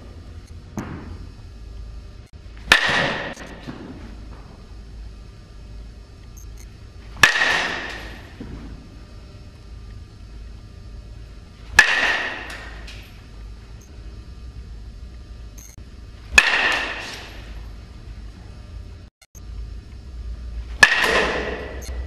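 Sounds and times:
metal bat hitting baseball: 0:02.6 - 0:04.0, 0:07.2 - 0:08.6, 0:11.7 - 0:13.0, 0:16.3 - 0:17.5, 0:20.8 - 0:21.8.

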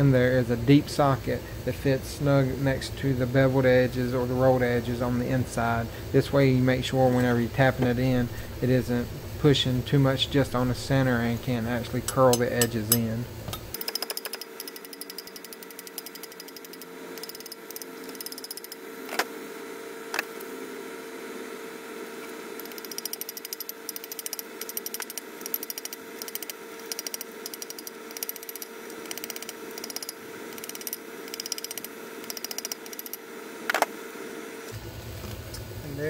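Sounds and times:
steady hum: 0:00.0 - 0:36.0.

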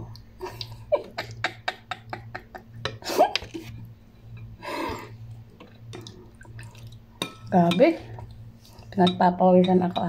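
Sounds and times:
steady low hum: 0:00.0 - 0:10.0
woman laughing breathily: 0:00.4 - 0:03.6.

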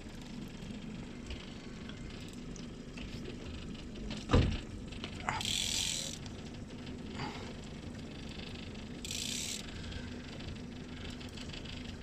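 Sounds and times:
fishing reel ratcheting clicks: 0:05.2 - 0:06.3, 0:08.2 - 0:10.0.

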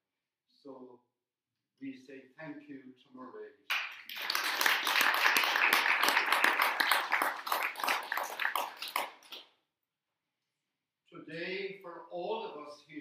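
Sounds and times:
congregation applauding: 0:03.7 - 0:09.4.

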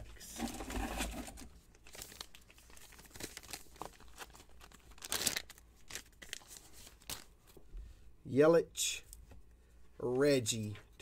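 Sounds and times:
crinkling of paper and foil: 0:00.3 - 0:07.6.

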